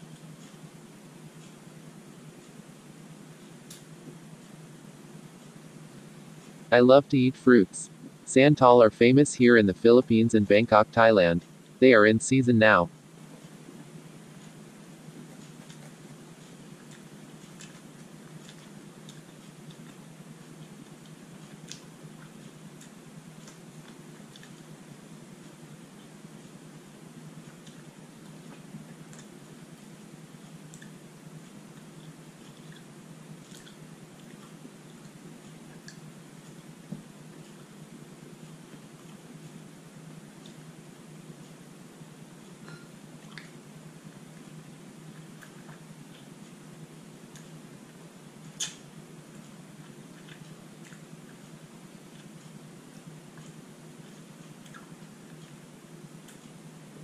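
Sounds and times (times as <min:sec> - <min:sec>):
steady low hum: 0:00.0 - 0:57.0
wet mouth clicks chewing: 0:31.7 - 0:36.0, 0:42.7 - 0:43.6, 0:48.5 - 0:48.8, 0:49.4 - 0:55.6.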